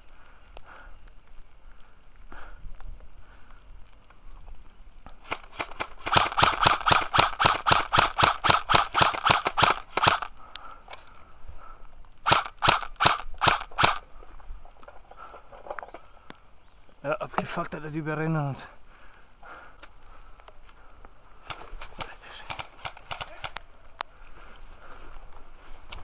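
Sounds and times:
airsoft rifle shots: 5.2s - 10.3s, 12.2s - 14.0s, 21.5s - 23.6s.

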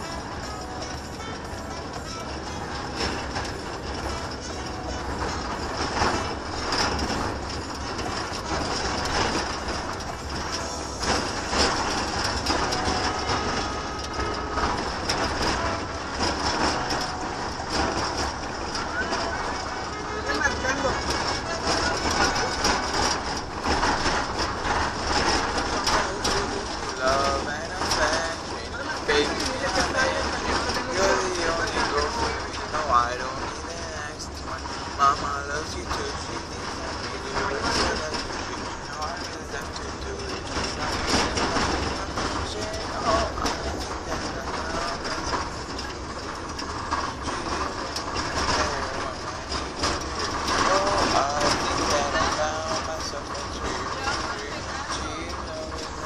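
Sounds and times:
car cabin road rumble: 0.0s - 56.0s
rattles and knocks: 0.0s - 56.0s.

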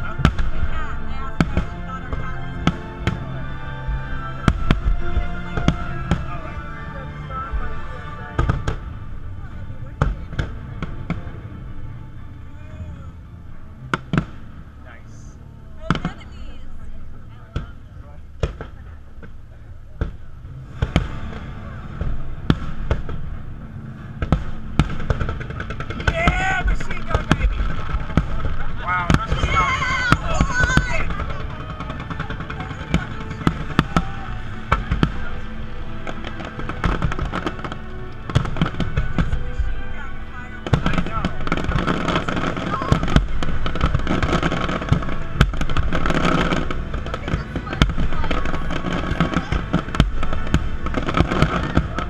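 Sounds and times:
low background rumble: 0.0s - 52.0s
steady music: 0.0s - 52.0s.

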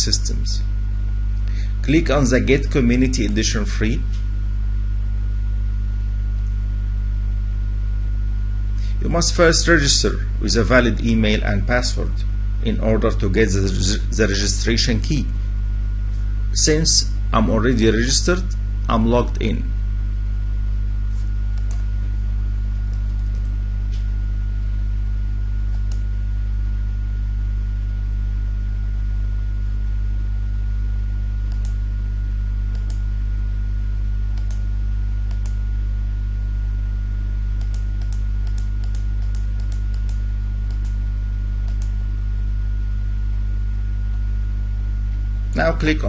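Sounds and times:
electrical mains hum: 0.0s - 46.0s
computer mouse clicks: 21.5s - 21.8s, 22.9s - 23.5s, 25.7s - 26.0s, 31.4s - 31.8s, 32.7s - 33.0s, 34.4s - 34.6s, 35.3s - 35.6s, 37.6s - 41.0s, 41.6s - 42.0s
keystrokes: 22.9s - 23.5s, 31.4s - 31.8s, 34.4s - 34.6s, 35.3s - 35.6s, 37.6s - 41.0s, 41.6s - 42.0s.

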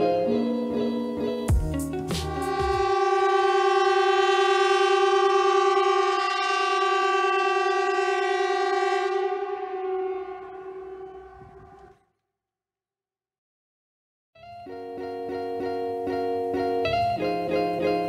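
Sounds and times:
air-raid siren steady tone: 2.2s - 12.0s.

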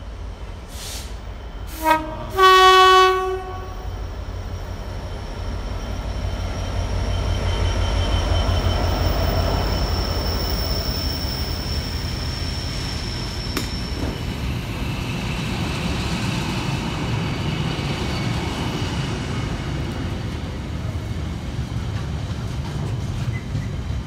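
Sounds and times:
two-tone train horn: 1.7s - 4.0s.

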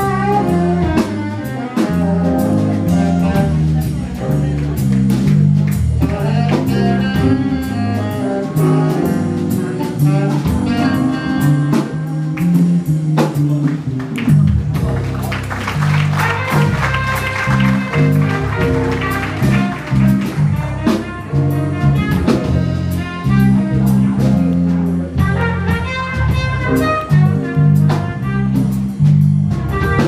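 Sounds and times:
bass line: 0.0s - 30.0s
drums: 0.0s - 30.0s
jazz band playing: 0.0s - 30.0s
higher melody line: 5.8s - 13.0s, 14.6s - 28.5s.

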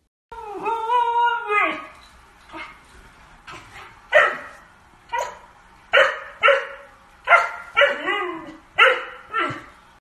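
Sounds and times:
dog barking: 4.1s - 8.1s, 8.8s - 9.7s.

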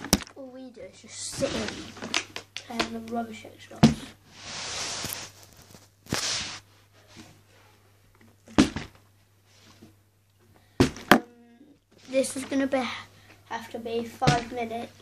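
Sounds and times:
plastic bottle rustling: 1.1s - 3.1s, 11.9s - 12.9s.

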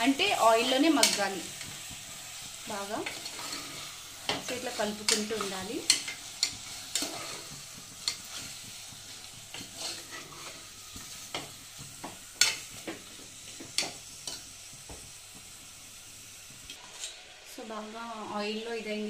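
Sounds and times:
chicken sizzling in oil: 0.0s - 19.0s
spoon clinking and scraping pot: 3.0s - 13.0s.

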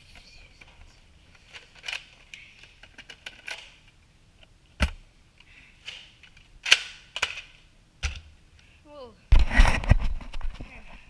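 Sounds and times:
handling clicks and rustling: 0.2s - 5.0s.

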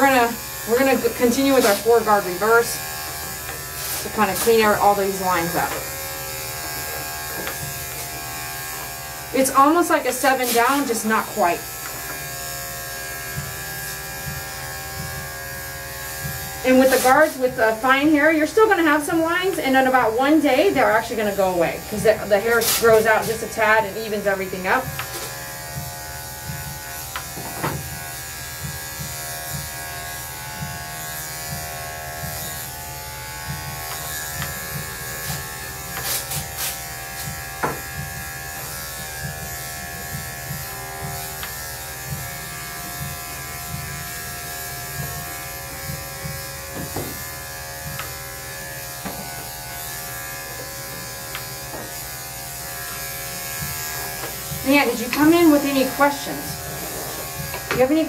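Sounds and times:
electric clippers buzzing: 0.0s - 58.0s.

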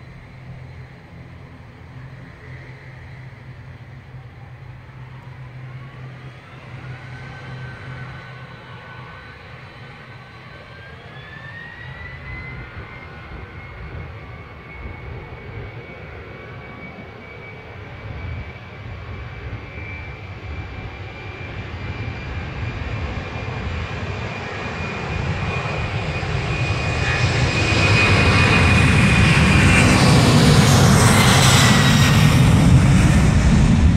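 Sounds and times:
jet engines at takeoff: 0.0s - 33.9s.

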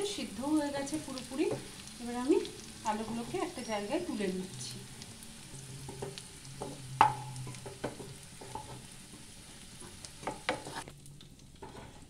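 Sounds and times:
oil sizzling: 0.0s - 12.0s
wooden spatula scraping a pan: 0.9s - 4.4s, 5.4s - 10.9s, 11.5s - 12.0s.

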